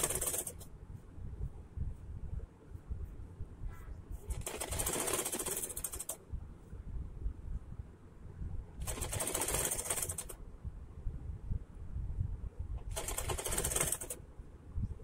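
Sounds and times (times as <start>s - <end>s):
sewing machine needle rattle: 0.0s - 0.6s, 4.4s - 6.2s, 8.8s - 10.4s, 12.9s - 14.2s.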